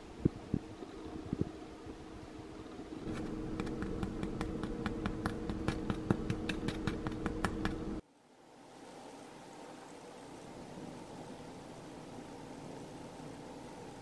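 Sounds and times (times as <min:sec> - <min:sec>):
bread crust crackling: 0:03.0 - 0:08.0.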